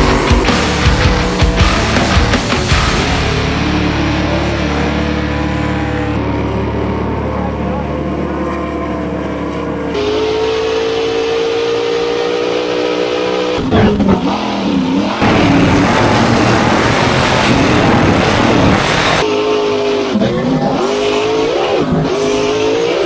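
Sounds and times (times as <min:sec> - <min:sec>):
jet boat engine at high revs: 0:05.0 - 0:23.0.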